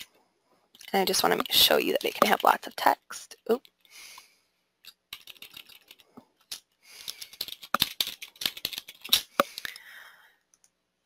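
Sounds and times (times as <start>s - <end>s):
computer keyboard typing: 0.8s - 3.8s, 5.1s - 6.1s, 7.1s - 9.7s.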